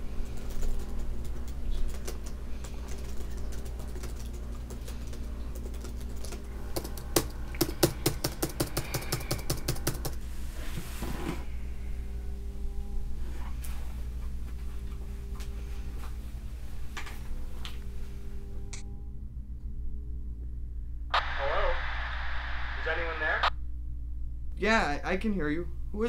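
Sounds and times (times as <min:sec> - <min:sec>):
typing on laptop keyboard: 0:00.2 - 0:10.2.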